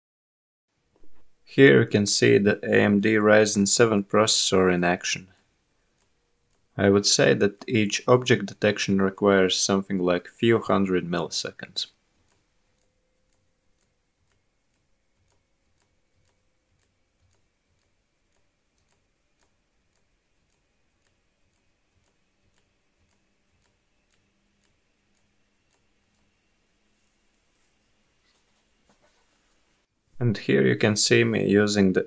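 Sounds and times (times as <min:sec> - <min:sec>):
faint ticks: 0:12.2 - 0:29.6.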